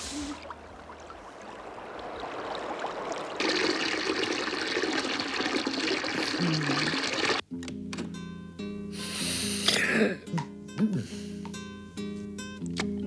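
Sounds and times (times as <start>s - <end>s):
water gushing from tap: 1.8s - 7.4s.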